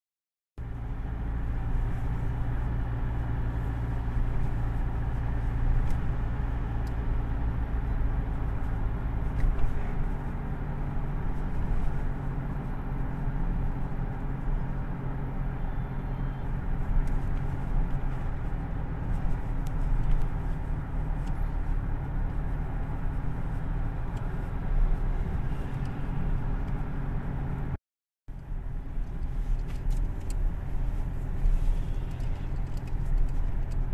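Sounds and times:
car engine and road rumble: 0.6 - 33.9.

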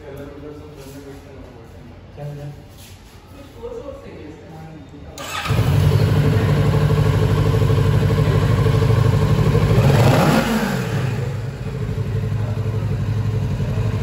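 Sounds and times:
motorcycle engine idling: 5.2 - 14.0.

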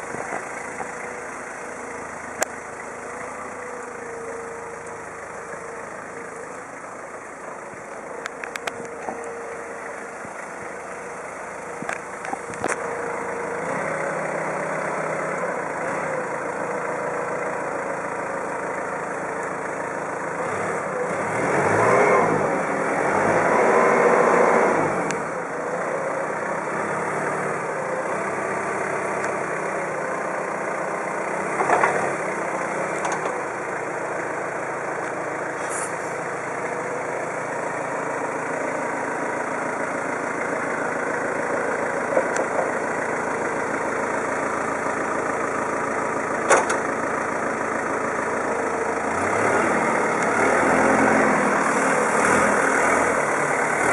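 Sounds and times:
forklift engine running: 0.0 - 53.9.

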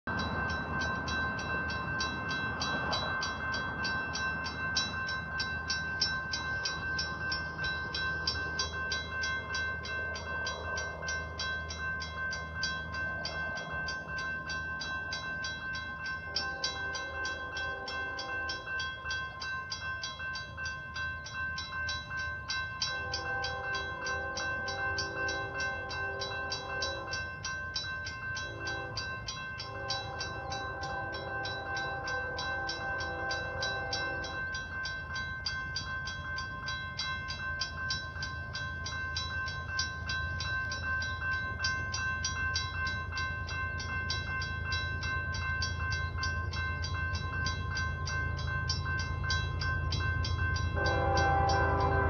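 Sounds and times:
railroad crossing bell ringing: 0.0 - 52.0
distant train horn blasts: 16.3 - 18.8, 22.8 - 27.4, 28.4 - 34.6, 50.8 - 52.0.

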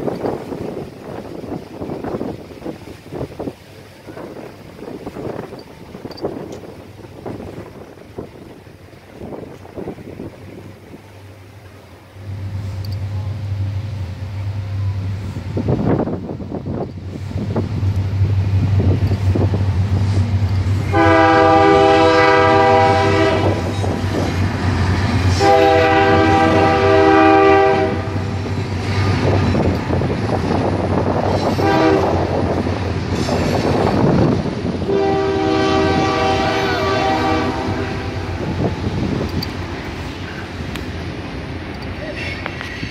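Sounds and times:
diesel engines rumbling: 0.0 - 42.9
freight cars rolling: 0.0 - 42.9
locomotive air horn blasts: 20.7 - 24.0, 25.3 - 28.4, 31.5 - 32.3, 34.8 - 38.4.

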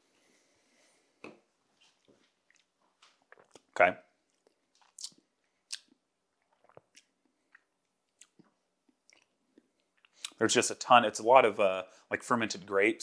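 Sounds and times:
lip smacks: 4.3 - 10.4.

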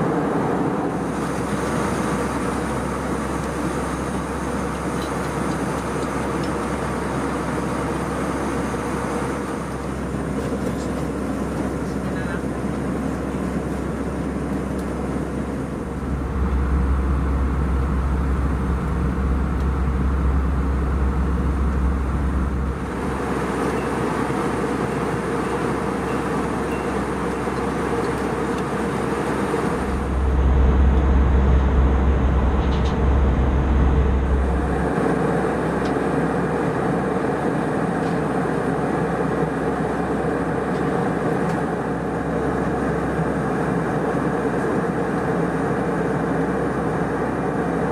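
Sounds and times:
airliner cabin noise: 0.0 - 47.9
deep rumble: 15.3 - 23.6, 27.2 - 35.9.

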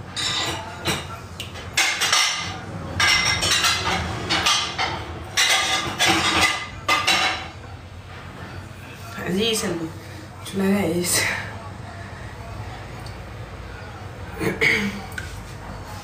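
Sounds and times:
pots and dishes clattering: 0.0 - 7.7.

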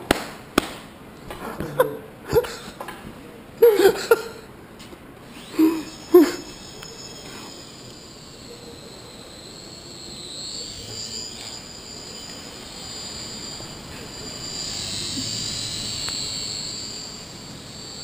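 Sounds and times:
toy helicopter motor whining: 5.2 - 18.0.

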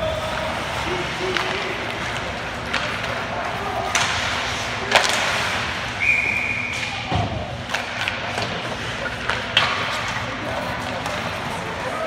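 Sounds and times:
hockey stick hitting puck: 0.1 - 5.8, 6.6 - 11.9.

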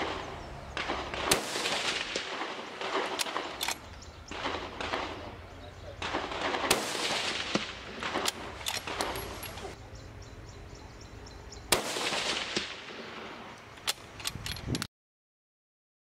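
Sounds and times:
rifle shot with echo: 0.0 - 9.8, 11.7 - 14.1
rifle clicks: 0.8 - 5.2, 6.0 - 9.8, 13.6 - 14.9.

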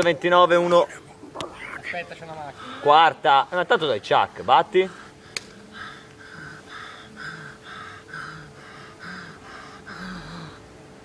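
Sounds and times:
man panting: 4.7 - 10.6.

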